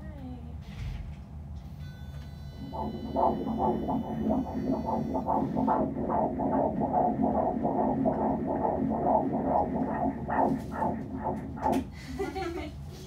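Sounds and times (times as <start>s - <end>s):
fetal heartbeat through doppler: 2.6s - 12.0s.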